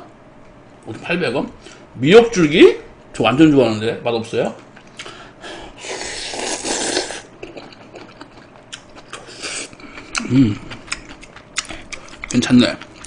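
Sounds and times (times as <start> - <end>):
slurping: 5.8 - 11.0
wet chewing: 6.0 - 13.0.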